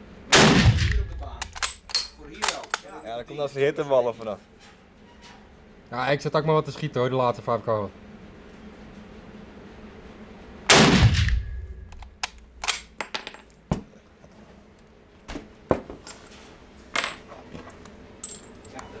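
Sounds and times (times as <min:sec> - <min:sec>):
rifle shot with echo: 0:00.3 - 0:01.2, 0:10.7 - 0:11.6.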